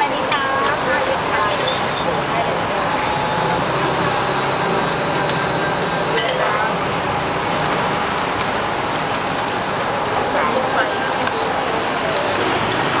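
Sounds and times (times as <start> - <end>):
street noise: 0.0 - 13.0
glasses and cups clinking: 1.4 - 2.2, 5.8 - 6.8.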